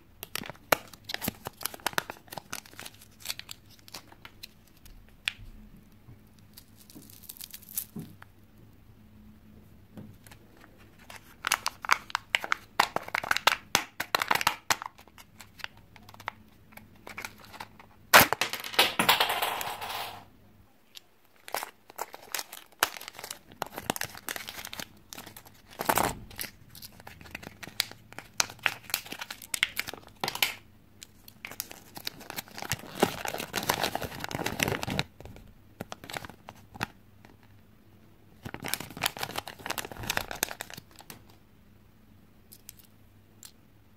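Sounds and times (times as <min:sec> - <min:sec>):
packaging crinkling and tearing: 0:00.2 - 0:05.0, 0:06.4 - 0:08.0, 0:10.2 - 0:18.4, 0:21.3 - 0:37.5, 0:38.4 - 0:41.4
paper wrapper crinkling: 0:00.2 - 0:05.0, 0:06.4 - 0:08.0, 0:10.2 - 0:18.4, 0:21.3 - 0:37.6, 0:38.4 - 0:41.4.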